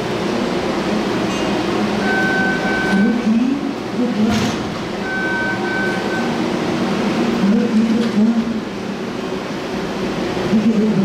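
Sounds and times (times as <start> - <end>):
subway train rumble and hum: 0.0 - 11.0
two-part beeping tone: 2.0 - 3.3, 5.0 - 6.4.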